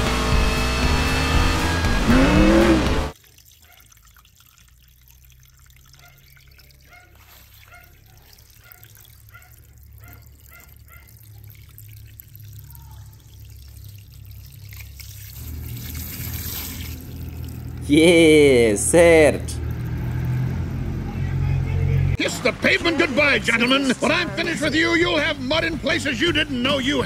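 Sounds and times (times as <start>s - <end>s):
music: 0.0s - 3.1s, 22.4s - 27.0s
racing car: 0.0s - 3.2s, 15.5s - 27.0s
water trickling and dripping: 3.1s - 17.9s, 19.6s - 21.0s.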